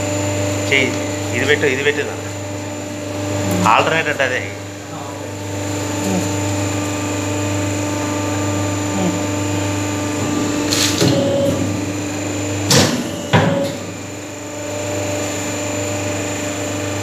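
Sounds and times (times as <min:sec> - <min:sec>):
machine motor and pump hum: 0:00.0 - 0:17.0
sharp hydraulic clunks: 0:12.7 - 0:13.9.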